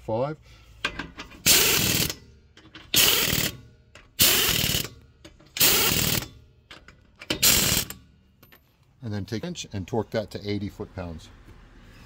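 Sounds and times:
impact wrench rattling: 0.8s - 8.7s.

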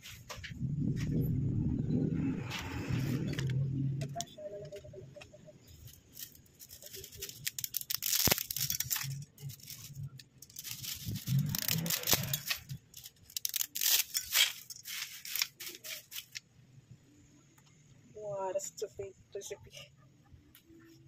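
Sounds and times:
plastic packet crinkling: 5.7s - 16.4s
dry spaghetti clicking: 5.8s - 16.4s.

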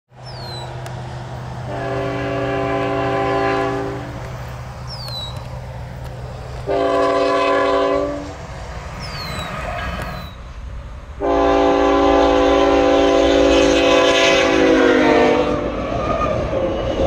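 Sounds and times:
locomotive air horn blasts: 1.7s - 4.2s, 6.6s - 8.4s, 11.2s - 15.8s.

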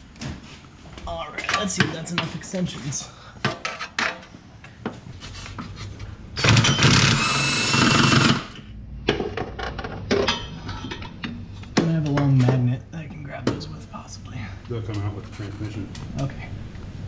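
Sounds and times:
cordless power tool whining: 6.4s - 8.6s.

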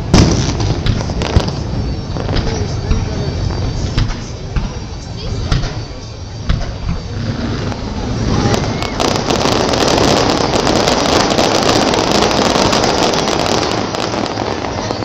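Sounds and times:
fireworks crackling and fizzing: 0.0s - 15.0s.

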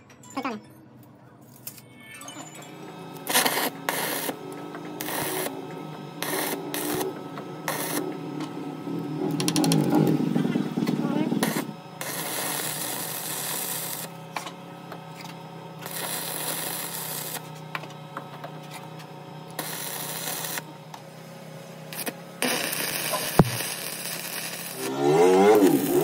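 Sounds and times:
steady low hum: 2.6s - 26.0s
arc welding crackling hiss: 3.2s - 8.3s, 11.0s - 17.8s, 18.7s - 20.7s, 21.7s - 26.0s.

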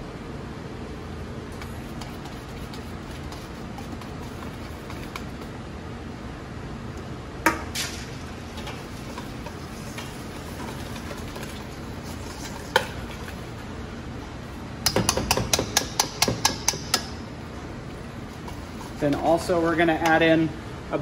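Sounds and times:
whisk clinking against metal bowl: 14.8s - 17.2s.

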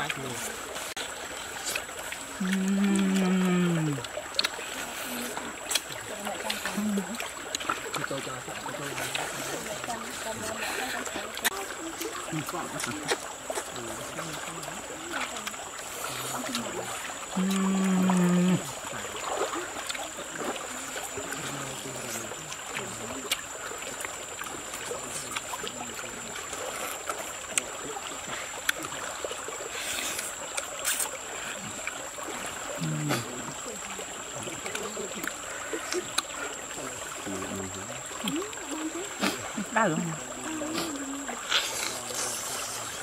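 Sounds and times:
stream running: 0.0s - 43.0s
clicks of eating by hand: 1.6s - 6.8s, 29.8s - 31.2s
man humming low: 2.4s - 4.0s.

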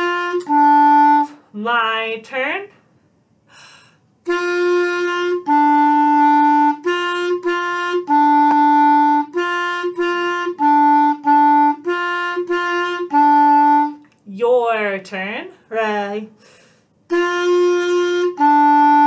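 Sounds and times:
clarinet two-note melody: 0.0s - 1.4s, 4.2s - 14.0s, 17.1s - 19.0s.

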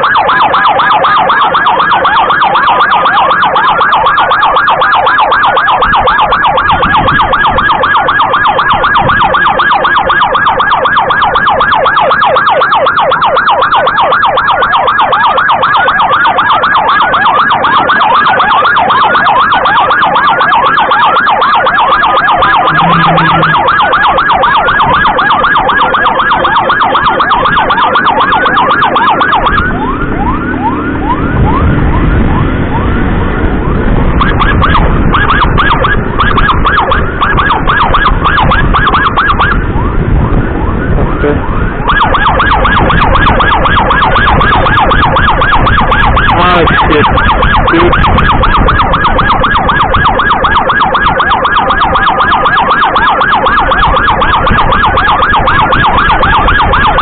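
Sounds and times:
electronic siren yelping: 0.0s - 57.0s
low rumble: 29.8s - 35.2s.

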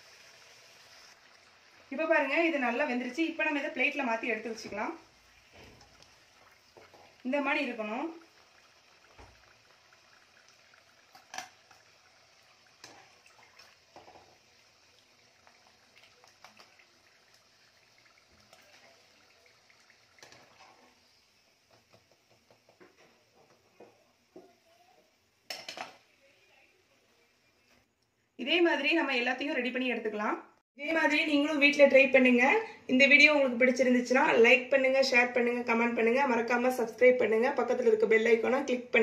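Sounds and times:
hot oil hissing: 0.0s - 16.2s.

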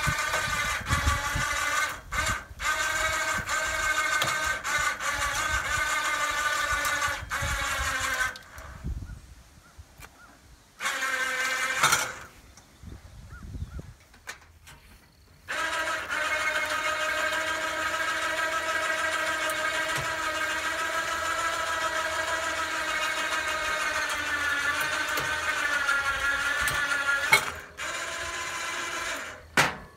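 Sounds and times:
drill click: 0.0s - 8.8s, 10.8s - 12.7s, 15.4s - 29.9s
cordless drill motor running: 0.0s - 9.1s, 10.8s - 12.4s, 15.4s - 29.6s.

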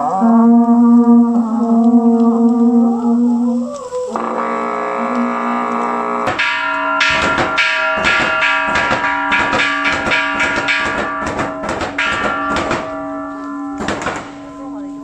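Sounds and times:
steady ringing tone: 4.4s - 15.0s
rapid drum strikes: 6.2s - 14.8s.

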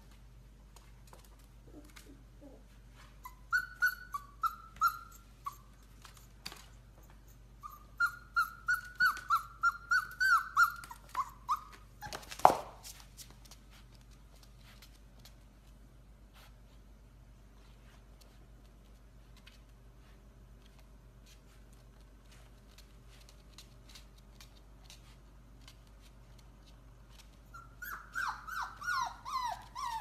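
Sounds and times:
puppy whining: 1.0s - 12.8s, 21.6s - 30.0s
puppy yelp: 1.7s - 12.8s, 27.1s - 30.0s.

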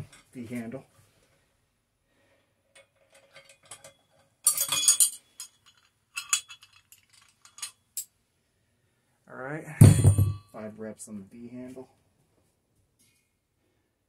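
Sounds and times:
metal handle clinking and rattling: 2.8s - 7.8s.

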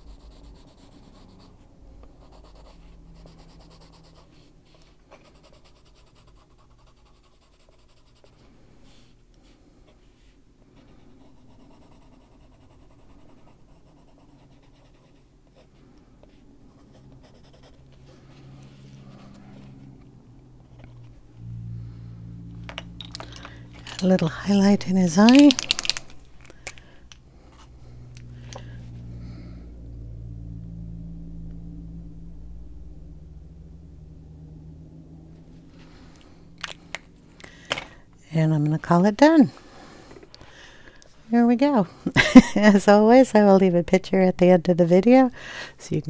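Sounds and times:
pencil scratching on paper: 0.0s - 4.5s, 5.1s - 8.5s, 10.8s - 15.7s, 16.3s - 17.9s
low steady hum: 0.0s - 46.0s.

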